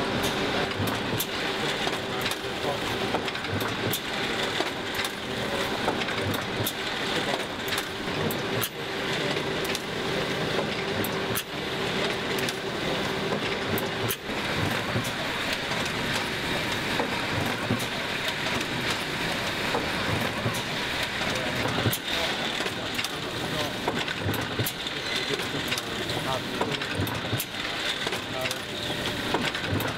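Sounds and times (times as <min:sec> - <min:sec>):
printing machinery clatter: 0:00.0 - 0:29.9
steady machine hum: 0:00.0 - 0:29.9.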